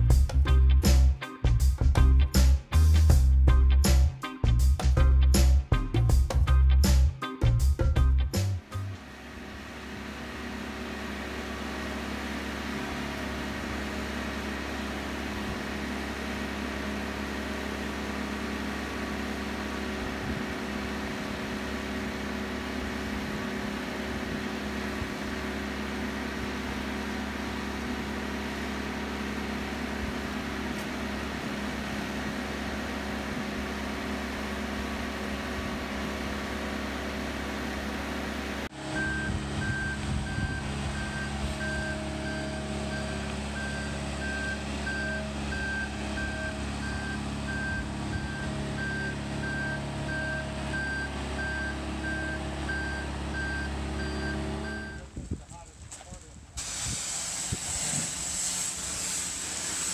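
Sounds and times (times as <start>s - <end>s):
engine droning: 0.0s - 55.7s.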